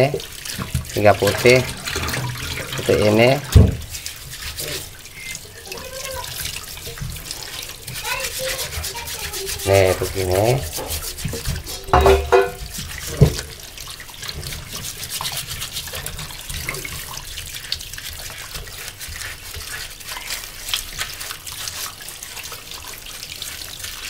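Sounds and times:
tap water running into metal sink: 0.0s - 24.0s
wet rubbing and splashing: 0.0s - 24.0s
sharp knock: 11.9s - 12.6s.

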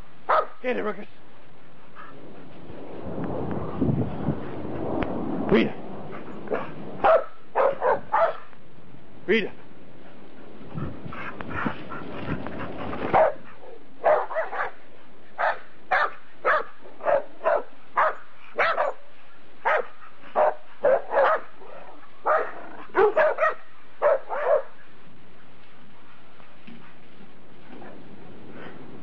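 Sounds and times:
dog barking: 0.3s - 0.6s, 6.5s - 8.5s, 13.1s - 14.8s, 15.4s - 19.0s, 19.6s - 21.5s, 22.2s - 24.8s.

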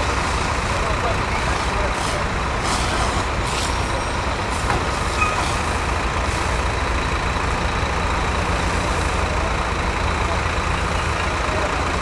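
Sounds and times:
truck engine rumbling: 0.0s - 12.0s.

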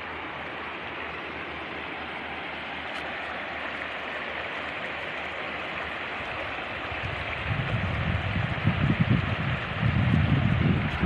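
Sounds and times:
river running over stones: 0.0s - 11.0s
wind buffeting microphone: 6.2s - 11.0s.

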